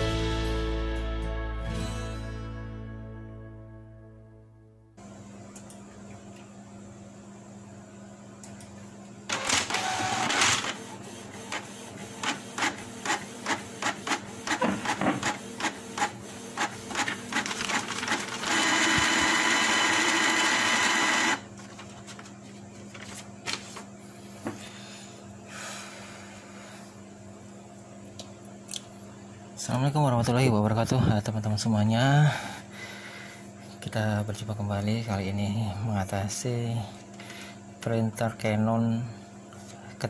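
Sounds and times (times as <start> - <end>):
printer motor noise: 9.2 - 22.3
printer motor whine: 9.2 - 23.9
printer gears clicking: 9.3 - 10.8, 11.4 - 21.4.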